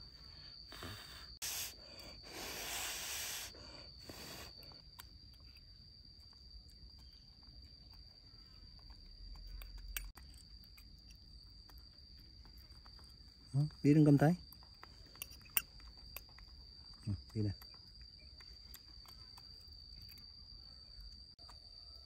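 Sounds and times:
insect trilling: 0.0s - 22.0s
bursts of hissy noise: 0.8s - 4.5s.

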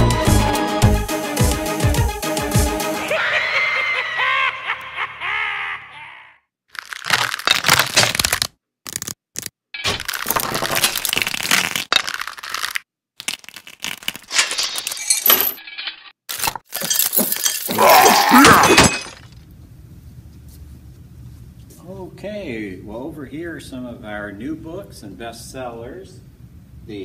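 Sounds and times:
bones crashing and clattering: 6.7s - 19.4s.

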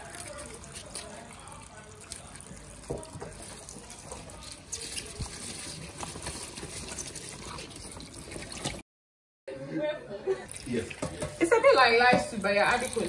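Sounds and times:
tap water running into sink: 2.4s - 8.8s, 10.5s - 13.0s.

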